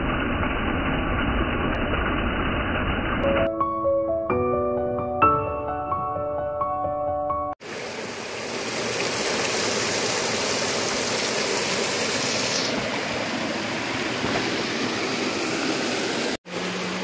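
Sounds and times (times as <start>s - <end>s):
stream water rushing: 7.6s - 17.0s.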